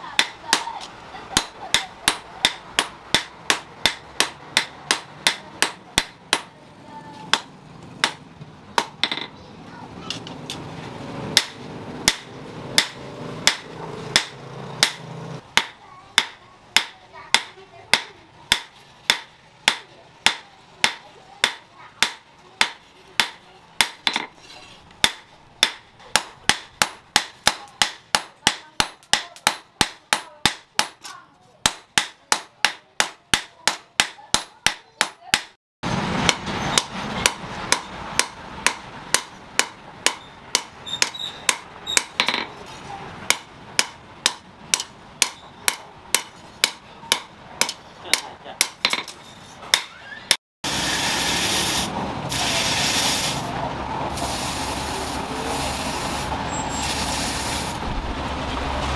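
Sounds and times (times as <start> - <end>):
steady background noise: 0.0 - 58.9
hammer striking hot steel: 1.3 - 6.5, 7.3 - 8.2, 11.4 - 24.3, 25.0 - 42.5, 43.2 - 50.0.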